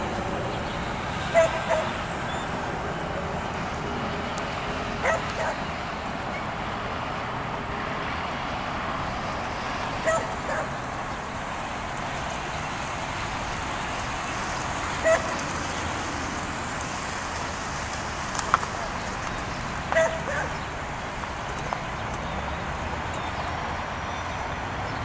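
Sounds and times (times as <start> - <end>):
outdoor background noise: 0.0 - 25.0
dog barking: 1.3 - 2.0, 5.0 - 5.6, 10.0 - 10.8, 15.0 - 15.4, 19.9 - 20.6.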